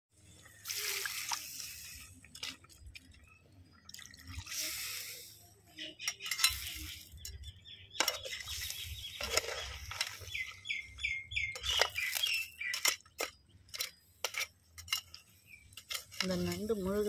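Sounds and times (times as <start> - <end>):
metal spoon scraping a pan: 4.4 - 10.6, 11.5 - 17.0
bird chirping: 5.6 - 14.1, 15.0 - 17.0.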